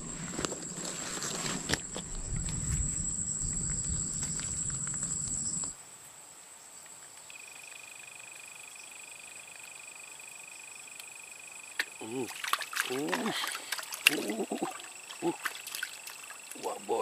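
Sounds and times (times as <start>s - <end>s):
low rumble: 0.0s - 5.7s
lower steady trill: 0.0s - 5.7s
high-pitched insect trill: 0.0s - 5.8s, 7.2s - 17.0s.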